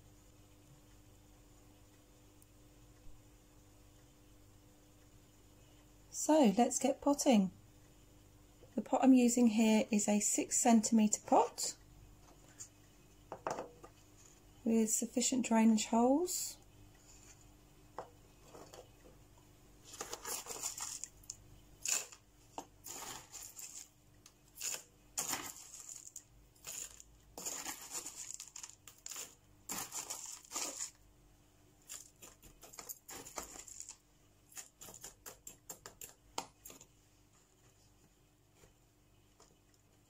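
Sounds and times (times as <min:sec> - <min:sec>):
grit rattling into plastic pot: 0:19.9 - 0:21.1, 0:22.8 - 0:23.9, 0:24.6 - 0:31.0, 0:31.9 - 0:34.8
metal spoon scraping grit: 0:21.8 - 0:22.2, 0:22.8 - 0:23.9, 0:24.6 - 0:31.0, 0:31.9 - 0:33.9.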